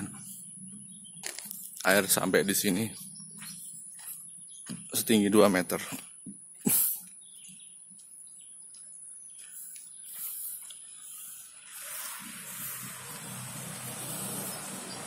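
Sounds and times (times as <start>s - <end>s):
birds chirping: 0.0s - 15.0s
motor vehicle approaching: 10.0s - 15.0s
high insect trill: 10.2s - 15.0s.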